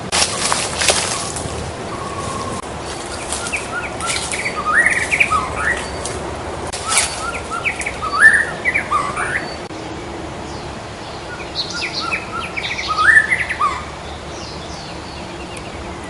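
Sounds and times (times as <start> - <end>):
bird singing whistled notes: 0.2 - 6.2, 6.8 - 9.7, 10.5 - 16.0.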